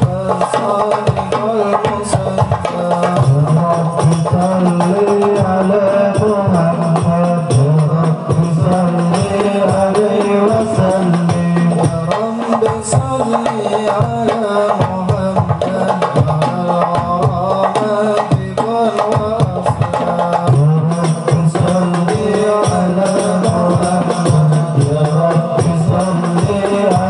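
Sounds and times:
drum beats: 0:00.0 - 0:27.0
man singing into a microphone: 0:00.0 - 0:27.0.

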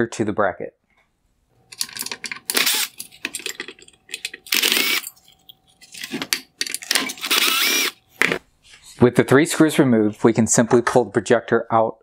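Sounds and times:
power screwdriver running: 0:02.5 - 0:03.0, 0:04.5 - 0:05.1, 0:06.9 - 0:08.0.

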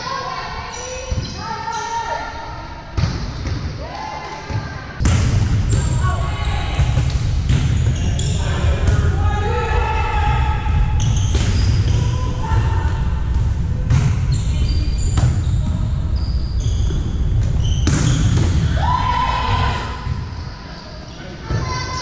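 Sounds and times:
sneaker squeaks: 0:00.6 - 0:02.2, 0:07.6 - 0:08.6, 0:11.0 - 0:12.1, 0:13.9 - 0:18.7
volleyballs hit and bouncing: 0:03.0 - 0:06.1, 0:06.7 - 0:09.2, 0:10.9 - 0:12.1, 0:15.1 - 0:15.8, 0:16.8 - 0:18.9.

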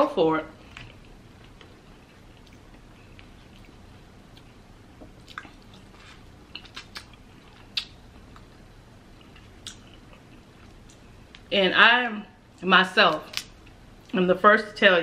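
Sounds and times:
wet mouth smacks chewing: 0:05.2 - 0:08.5.

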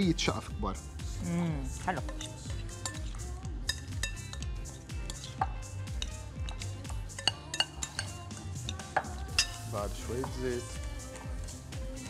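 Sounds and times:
forks scraping glass bowls: 0:02.0 - 0:09.6.

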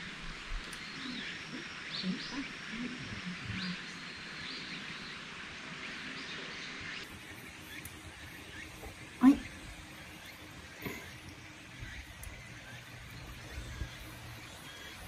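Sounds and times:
birds chirping: 0:00.0 - 0:15.0
chorus of wild animals: 0:00.0 - 0:15.0
faint low voices: 0:00.9 - 0:04.1, 0:08.0 - 0:15.0.

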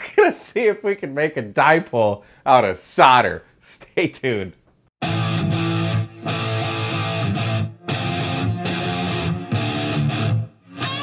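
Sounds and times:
rock music with electric guitar: 0:05.0 - 0:11.0.

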